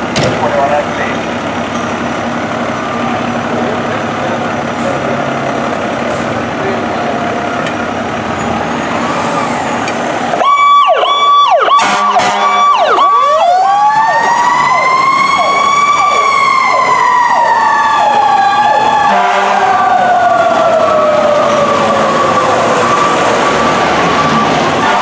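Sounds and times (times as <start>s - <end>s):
fire truck engine: 0.0s - 25.0s
road noise: 0.0s - 25.0s
wailing siren: 8.5s - 25.0s
yelp siren: 8.7s - 25.0s.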